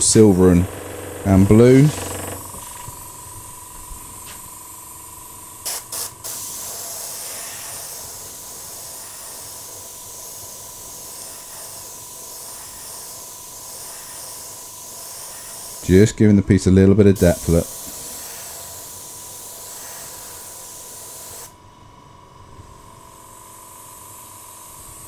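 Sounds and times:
airbrush spraying hiss: 5.6s - 16.1s, 17.2s - 21.6s.

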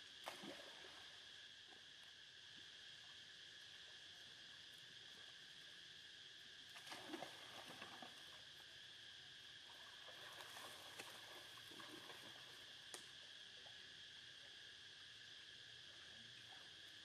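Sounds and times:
insects droning: 0.0s - 17.0s
small water splashes: 0.2s - 1.2s, 6.7s - 8.4s, 9.7s - 12.7s.

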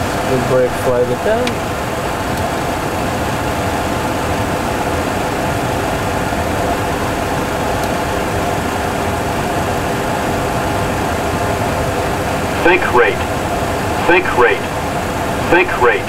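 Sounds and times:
faint hum: 11.8s - 16.0s.

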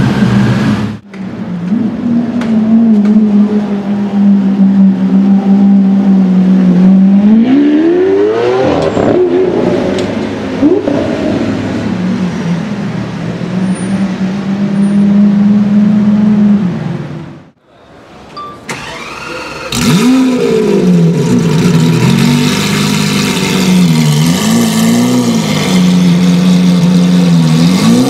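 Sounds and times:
car engines droning: 0.0s - 28.0s
engine accelerating hard: 18.7s - 28.0s.

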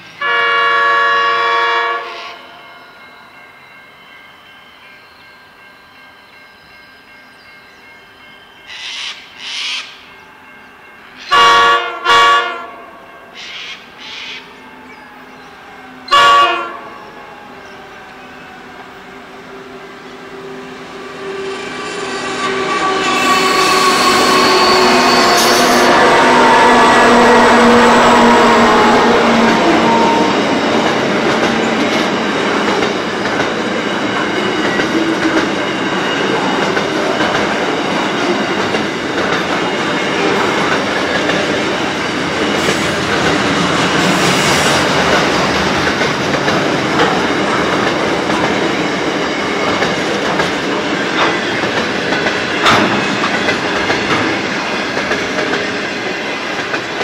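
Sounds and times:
diesel locomotive hum: 11.2s - 57.0s
train wheels clickety-clack: 21.0s - 57.0s.

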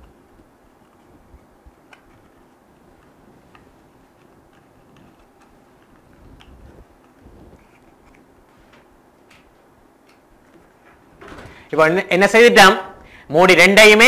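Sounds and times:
card being folded by hand: 0.0s - 10.8s
low room rumble: 0.0s - 14.0s.

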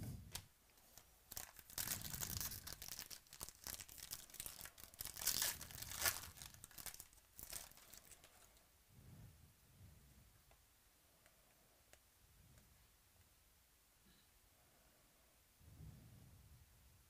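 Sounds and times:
foil wrapper tearing and crinkling: 1.3s - 8.5s.

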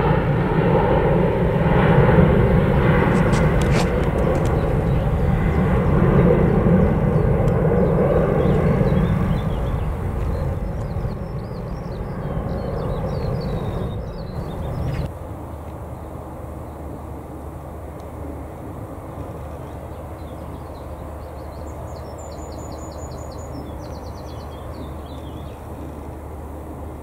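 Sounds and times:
distant jet aircraft rumble: 0.0s - 27.0s
songbird trilling: 7.1s - 15.1s.

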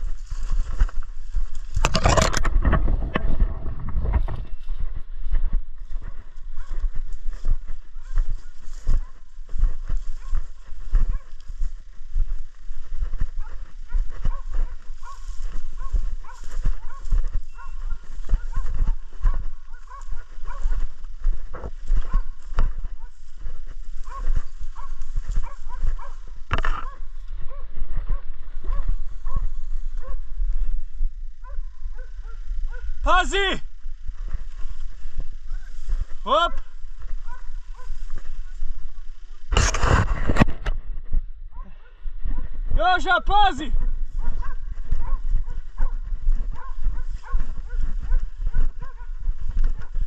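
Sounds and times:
heavy low thumping and rumble: 0.0s - 9.5s
dog yelping barks: 11.1s - 11.4s, 13.4s - 20.8s, 24.1s - 30.2s, 37.2s - 38.0s, 43.8s - 49.2s.

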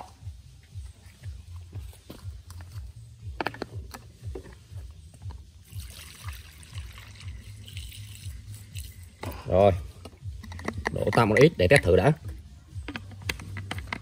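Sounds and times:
fuel trickling hiss: 5.6s - 10.0s.

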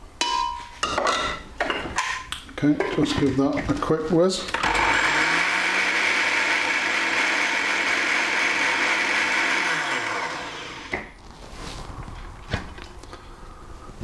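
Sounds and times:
blender motor running: 4.6s - 11.0s.

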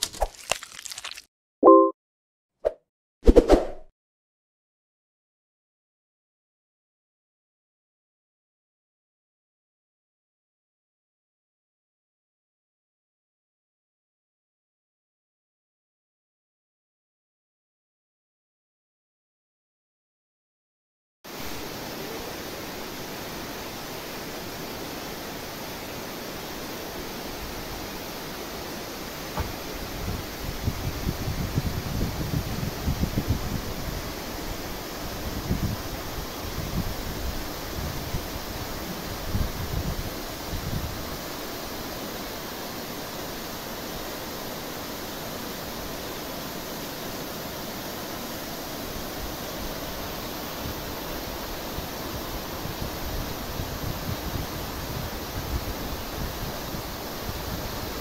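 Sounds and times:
waterfall rushing: 21.3s - 30.0s
waterfall rushing over rock: 21.3s - 58.0s.

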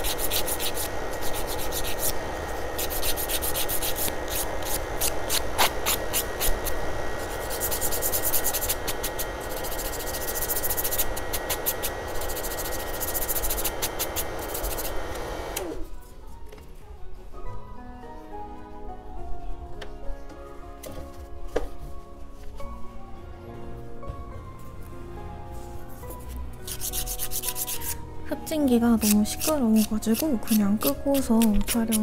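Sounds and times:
nail file rasping: 0.0s - 2.2s, 2.8s - 15.0s, 26.6s - 28.0s, 29.0s - 32.0s
dust collector fan whirring: 0.0s - 16.0s.

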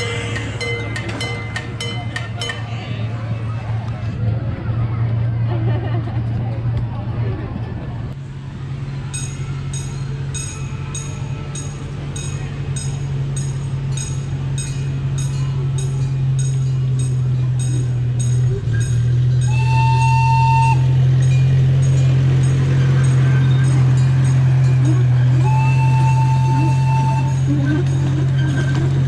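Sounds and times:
locomotive bell ringing: 0.0s - 3.1s, 9.0s - 29.0s
steam whistle toot: 19.4s - 21.1s, 25.4s - 27.9s.

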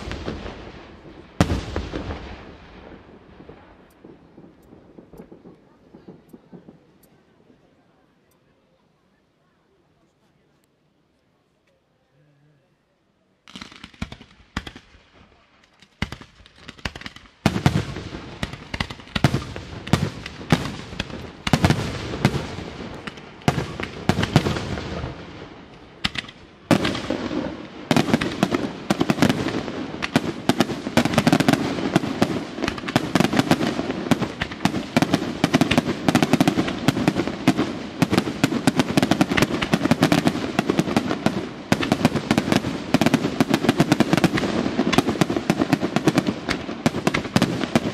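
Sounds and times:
fireworks bangs and crackle: 0.0s - 8.3s, 13.4s - 47.9s.

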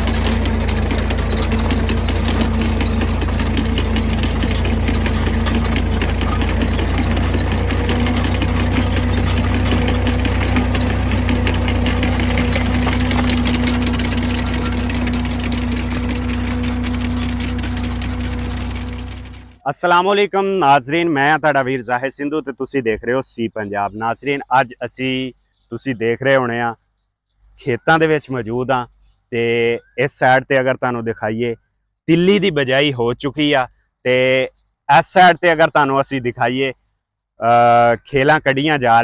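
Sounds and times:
planter metal rattle and clatter: 0.0s - 19.6s
tractor engine running: 0.0s - 19.7s.

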